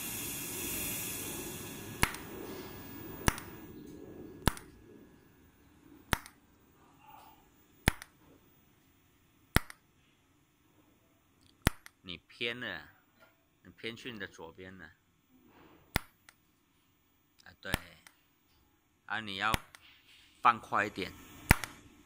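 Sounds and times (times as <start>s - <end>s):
welding hiss: 0.0s - 3.7s, 19.5s - 22.0s
welding arc snaps: 0.0s - 4.9s, 6.0s - 6.6s, 7.8s - 8.2s, 9.5s - 9.9s, 11.4s - 12.0s, 15.9s - 16.4s, 17.4s - 18.2s, 19.4s - 22.0s.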